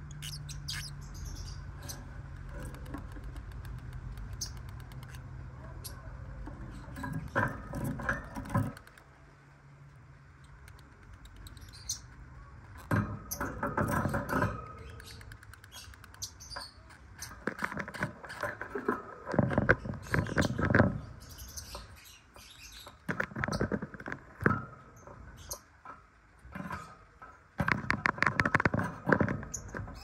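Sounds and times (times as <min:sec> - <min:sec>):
lovebirds chirping: 0:00.0 - 0:07.0, 0:10.5 - 0:17.9, 0:19.7 - 0:23.7
scratchy rustling and clicking: 0:01.9 - 0:05.3, 0:06.7 - 0:09.1, 0:13.8 - 0:21.1, 0:27.6 - 0:30.0.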